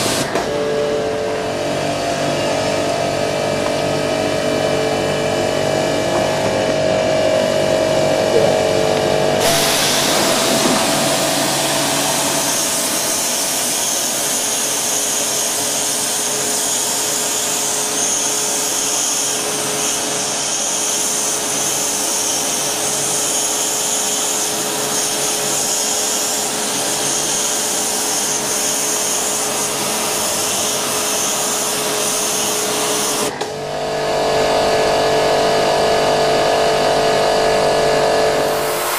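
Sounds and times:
pressure washer machine humming: 0.0s - 38.9s
water jet hissing against grille: 9.4s - 33.3s.

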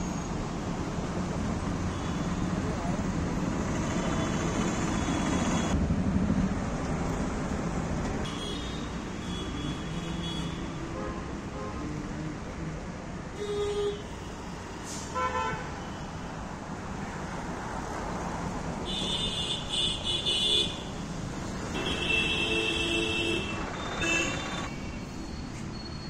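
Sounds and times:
street traffic noise: 0.0s - 26.0s
vehicle horns honking: 18.8s - 20.9s, 21.7s - 24.8s.

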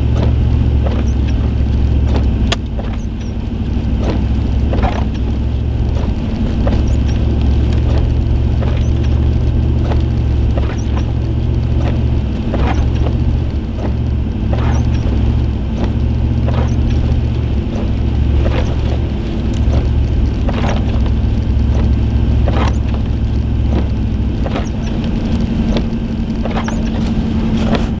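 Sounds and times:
car engine and road rumble: 0.0s - 28.0s
sharp squeaks or knocks: 0.2s - 3.4s, 4.0s - 5.2s, 6.0s - 9.2s, 10.6s - 11.2s, 11.8s - 13.2s, 13.8s - 15.2s, 15.8s - 19.1s, 19.7s - 23.1s, 23.7s - 25.0s, 25.7s - 27.9s.

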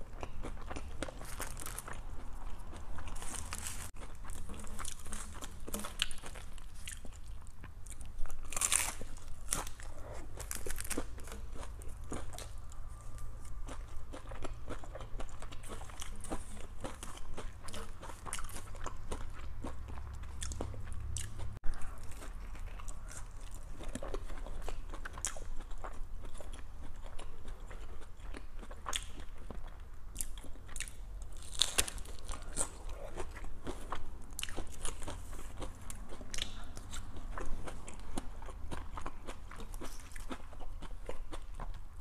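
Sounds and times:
chewing: 0.0s - 41.9s
taco shell crunching: 0.2s - 7.5s, 8.2s - 20.9s, 30.2s - 41.4s.

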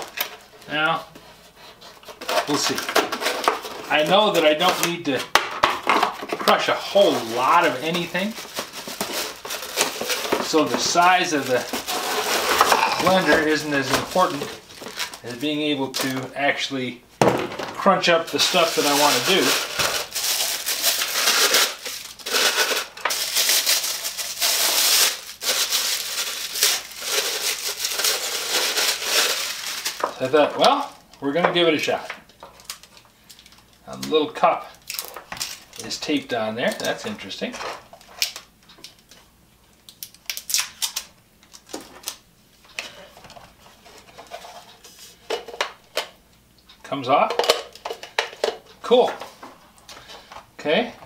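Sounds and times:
packing wrap crinkling: 0.0s - 16.7s, 17.6s - 31.3s, 34.7s - 37.2s, 37.8s - 42.2s.

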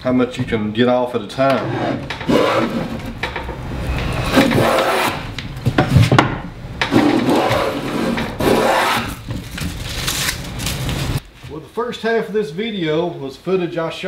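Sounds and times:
hand plane rasping on wood: 4.3s - 5.3s, 7.0s - 9.1s.

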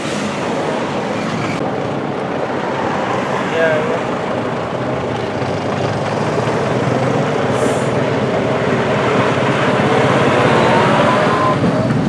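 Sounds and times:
diesel truck engine at low revs: 3.9s - 12.0s.

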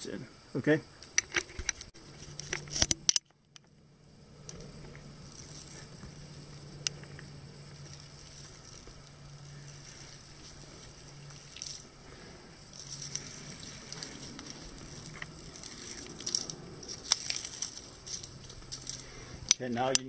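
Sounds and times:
steady low hum: 0.0s - 20.0s
tape peeling and crackling: 1.0s - 3.7s, 4.4s - 20.0s.

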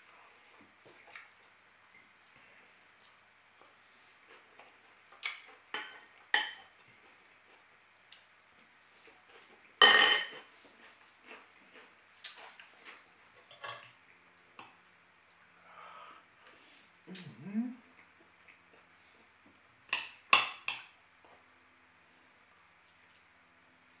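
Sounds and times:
cutlery clinking on plates: 5.3s - 6.7s, 9.8s - 10.5s
cutlery clatter: 5.8s - 6.7s, 9.8s - 10.5s.

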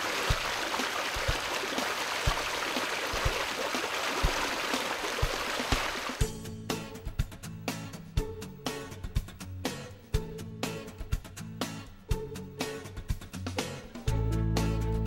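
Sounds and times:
stream running over rocks: 0.0s - 6.2s.

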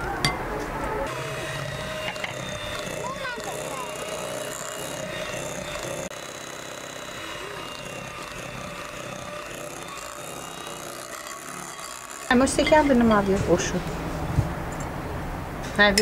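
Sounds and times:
electric hand mixer running: 1.1s - 13.0s.

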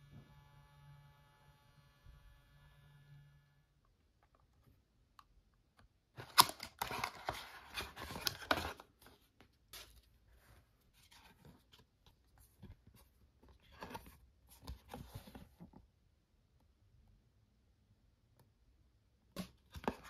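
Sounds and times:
cardboard crackling and creasing: 6.2s - 15.7s.

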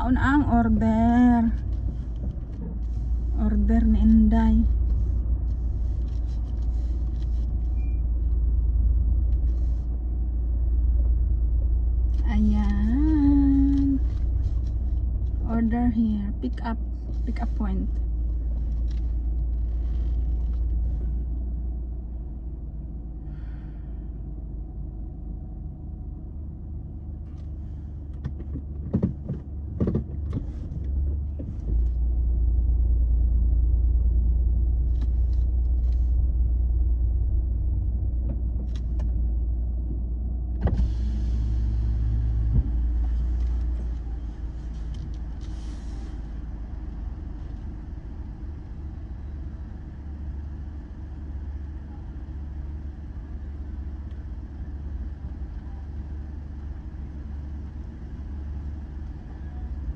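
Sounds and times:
car engine humming: 0.0s - 59.9s
light clicks and knocks: 27.4s - 32.0s.

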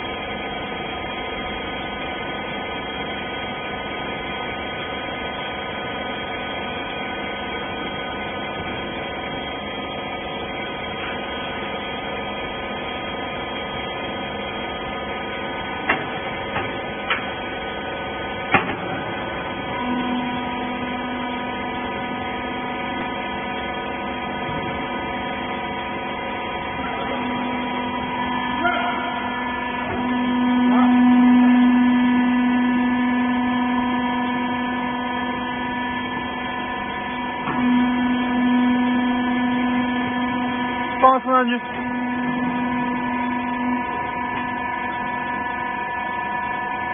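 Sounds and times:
electric motor and pump humming: 0.0s - 46.9s.

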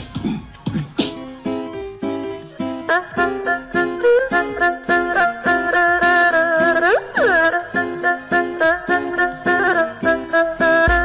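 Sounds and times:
quick melody of short notes: 2.5s - 11.0s.

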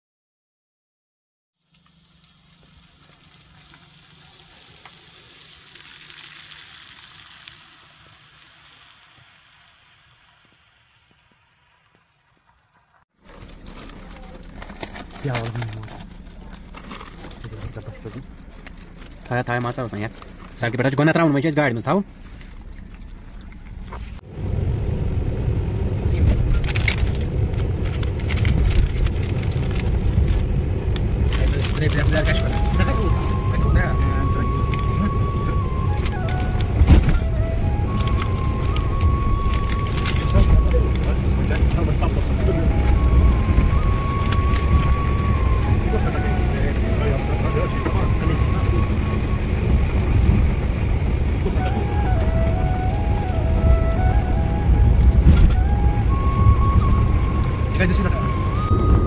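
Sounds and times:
low engine hum: 1.6s - 11.7s, 13.2s - 59.0s
tyres hissing on wet road: 1.7s - 12.6s, 29.7s - 54.6s.

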